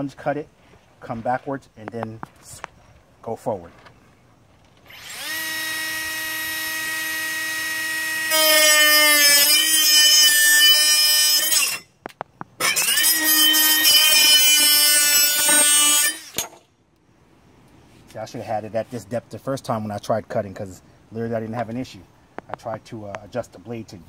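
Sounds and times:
power saw whining and cutting: 0:04.8 - 0:11.9, 0:12.6 - 0:16.6.

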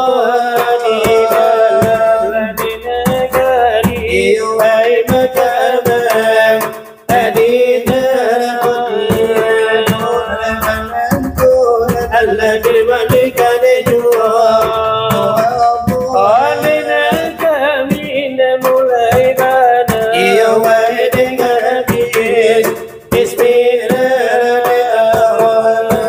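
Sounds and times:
men singing devotional chant: 0:00.0 - 0:26.0.

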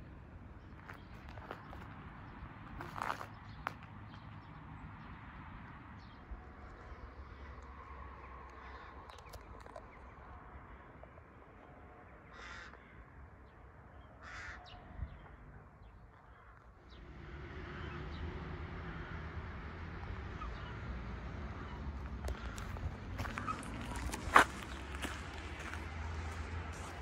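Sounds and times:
crow cawing: 0:12.3 - 0:13.2, 0:14.2 - 0:14.8.

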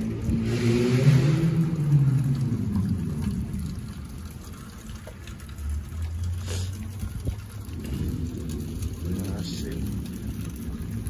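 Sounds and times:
car driving past on wet street: 0:00.0 - 0:11.0.

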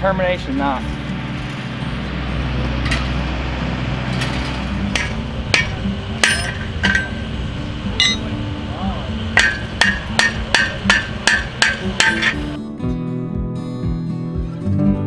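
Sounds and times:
hammer striking fence post: 0:04.2 - 0:07.3, 0:08.0 - 0:08.3, 0:09.4 - 0:12.6.

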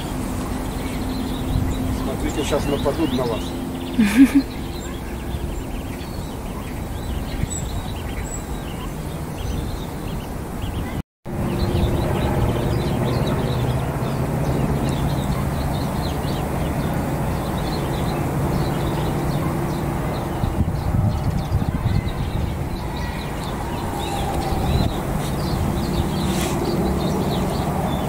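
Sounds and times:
steady low hum: 0:00.0 - 0:07.9.

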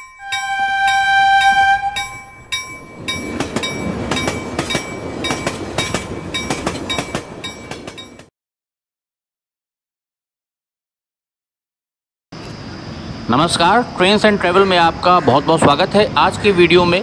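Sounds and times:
ticking chime effect: 0:00.0 - 0:08.3
train horn blast: 0:00.2 - 0:02.3
train passing rumble and clatter: 0:00.2 - 0:08.3, 0:12.4 - 0:17.0.

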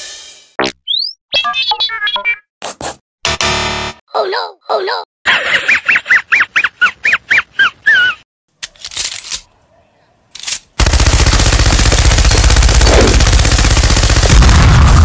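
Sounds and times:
wheezy cartoon snicker: 0:05.3 - 0:08.2
machine gun firing: 0:10.8 - 0:15.0.

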